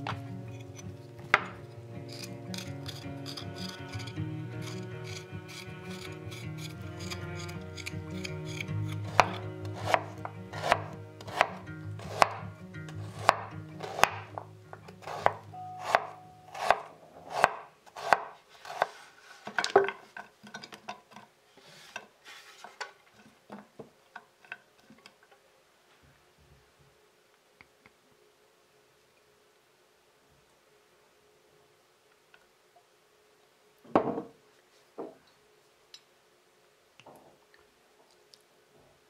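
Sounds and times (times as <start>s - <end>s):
soft background music: 0.0s - 17.0s
knife cutting on wooden board: 1.4s - 19.5s.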